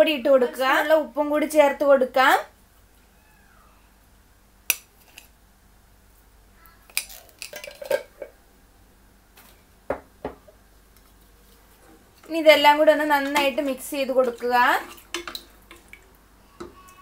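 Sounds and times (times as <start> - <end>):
spoon clinking against containers: 6.9 - 8.3.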